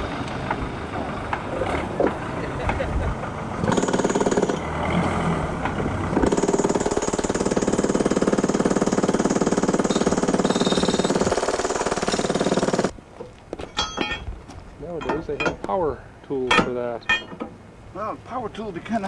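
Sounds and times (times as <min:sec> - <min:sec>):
pneumatic tamper hammering: 0:03.6 - 0:04.6, 0:06.2 - 0:12.9.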